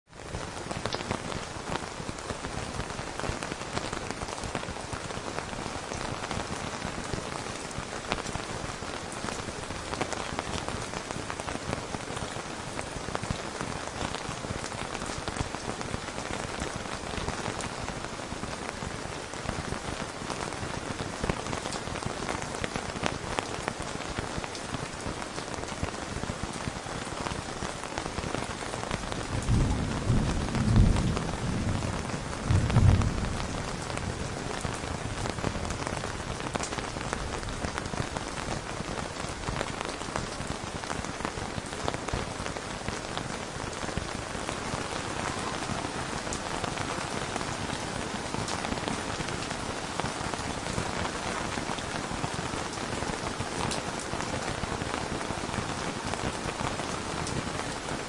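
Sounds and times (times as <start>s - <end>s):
rain pattering on a tent: 0.0s - 58.0s
low rumble of thunder: 29.2s - 35.8s.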